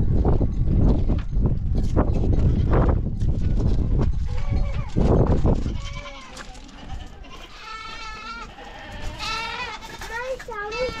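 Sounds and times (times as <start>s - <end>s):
goats bleating: 5.6s - 11.0s.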